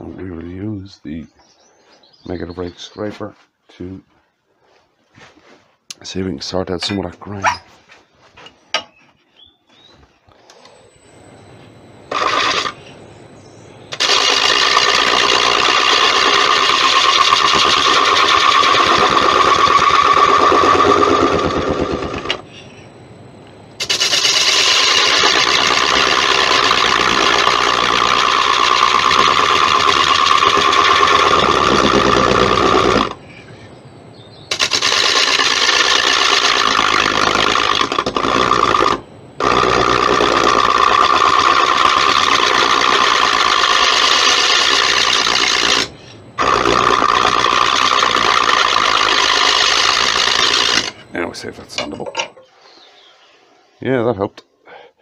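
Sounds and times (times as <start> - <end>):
scraper cutting wood on lathe: 12.1 - 12.8, 14.0 - 22.4, 23.8 - 33.2, 34.5 - 51.0.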